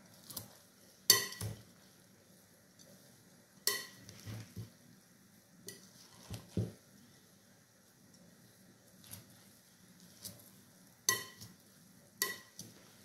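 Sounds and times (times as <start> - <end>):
metal spoon stirring in glass bowl: 11.1 - 11.5, 12.2 - 12.8
spoon clinking against glass: 11.1 - 11.5, 12.2 - 12.6.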